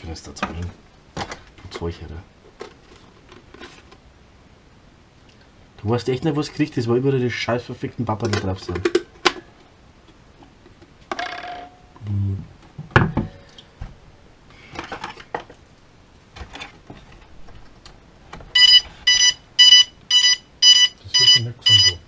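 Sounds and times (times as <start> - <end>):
plastic and cardboard handling: 2.5 - 4.0
electronic beeping: 18.6 - 22.0.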